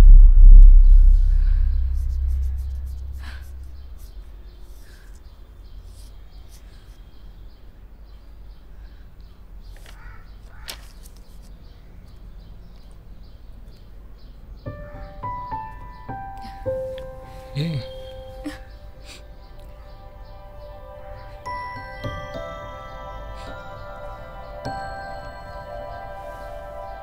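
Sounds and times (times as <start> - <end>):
piano music: 0.0 - 4.1, 14.7 - 27.0
low rumbling drone: 0.0 - 4.8
soft chirps: 0.0 - 7.4.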